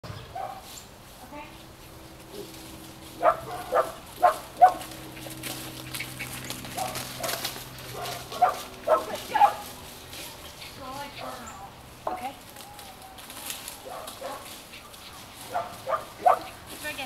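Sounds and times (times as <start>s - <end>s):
dog barking: 0.3s - 0.6s, 3.2s - 4.9s, 6.8s - 9.7s, 13.8s - 14.5s, 15.5s - 16.6s.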